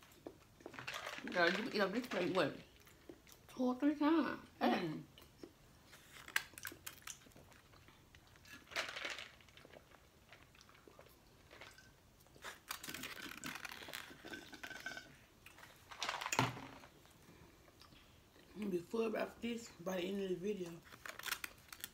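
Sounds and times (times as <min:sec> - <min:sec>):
chewing and mouth noises: 0:00.0 - 0:01.2, 0:02.7 - 0:03.6, 0:05.1 - 0:08.8, 0:09.4 - 0:14.8
clicks and rustles of foil: 0:06.0 - 0:07.3, 0:08.5 - 0:09.6, 0:12.4 - 0:15.0, 0:20.7 - 0:21.9.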